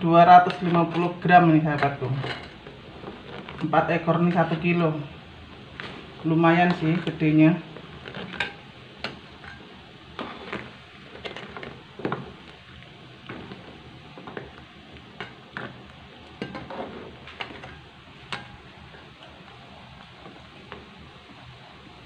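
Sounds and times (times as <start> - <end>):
gravy simmering hiss: 0.0 - 22.0
metal spatula scraping a wok: 0.5 - 3.8, 8.0 - 11.8.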